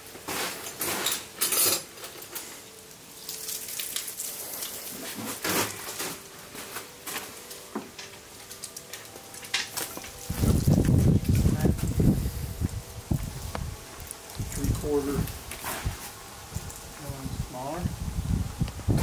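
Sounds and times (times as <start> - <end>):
metal hand tools clinking: 0.8 - 2.5.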